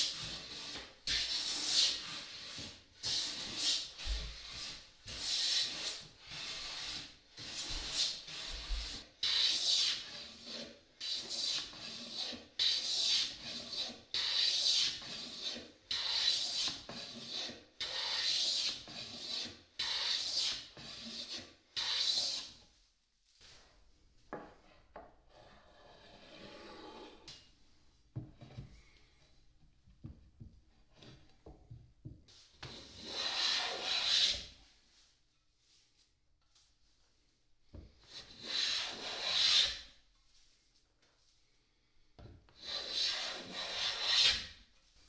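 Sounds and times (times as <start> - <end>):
hand plane rasping on wood: 0.0 - 22.5, 32.7 - 34.5, 38.0 - 39.8, 42.6 - 44.5.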